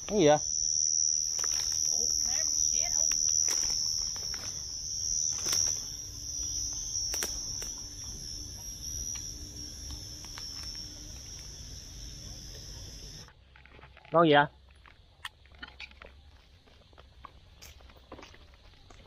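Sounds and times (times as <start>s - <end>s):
night insects trilling: 0.0s - 13.3s
sharp clicks: 7.0s - 7.8s.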